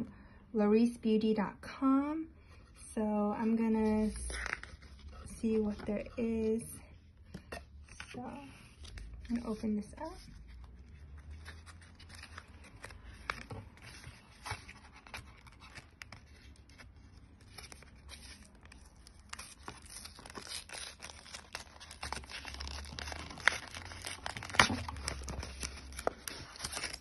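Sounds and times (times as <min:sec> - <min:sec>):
packaging rustling and scraping: 0:07.4 - 0:27.0.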